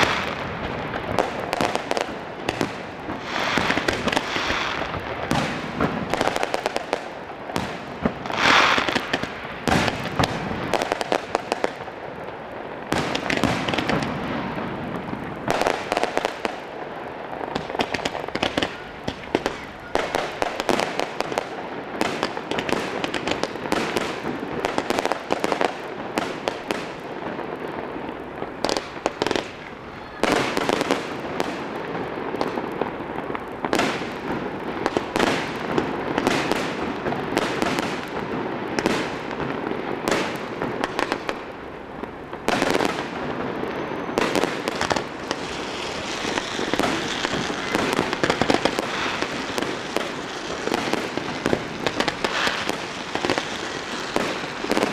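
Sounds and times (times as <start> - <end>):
rising firework hiss: 0.0 - 39.4, 42.4 - 54.9
fireworks crackle: 0.0 - 54.9
firework shells bursting: 7.6 - 11.5, 44.3 - 54.9.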